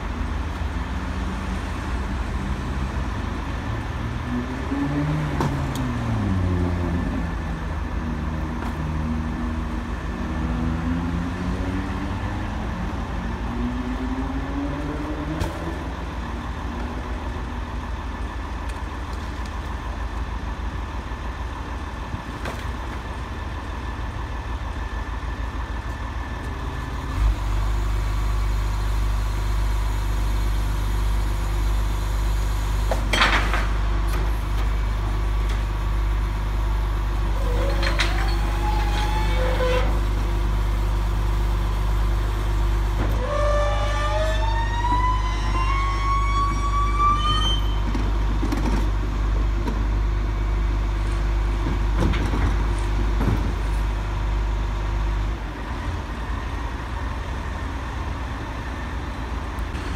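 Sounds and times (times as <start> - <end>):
diesel truck engine running: 14.8 - 43.8, 47.7 - 59.9.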